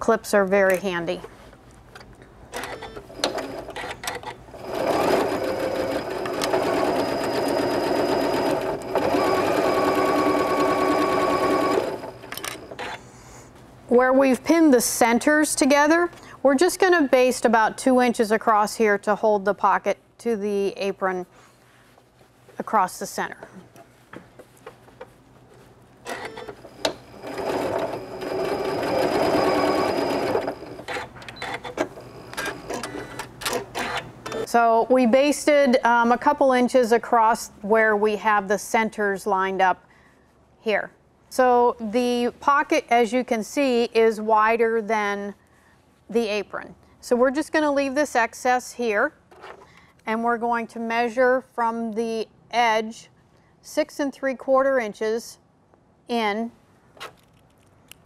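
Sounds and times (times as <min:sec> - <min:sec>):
sewing machine stitching: 0:02.6 - 0:13.0, 0:26.1 - 0:34.5.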